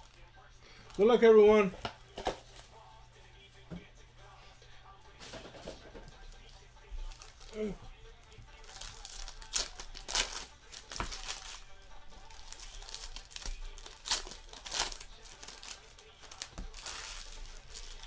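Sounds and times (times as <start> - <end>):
wrappers rustling: 6.2 - 18.0
foil packs ripping open: 8.6 - 18.0.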